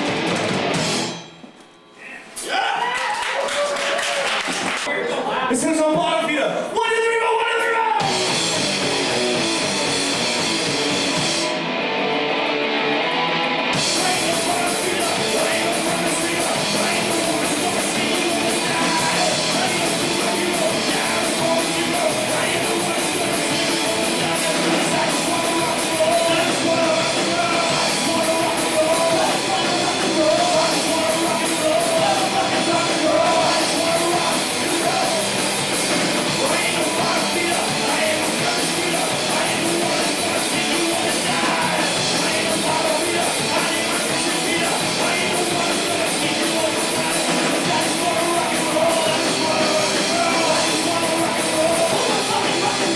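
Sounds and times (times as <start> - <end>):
drum kit: 0.0 - 1.8, 7.8 - 52.9
distorted electric guitars: 0.0 - 2.4, 8.0 - 52.9
person singing: 13.8 - 52.9.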